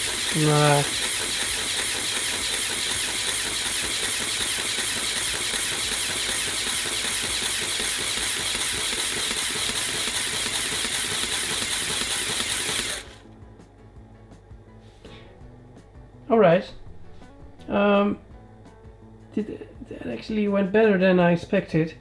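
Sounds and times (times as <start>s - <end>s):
toy compressor motors whirring: 0.0s - 13.2s.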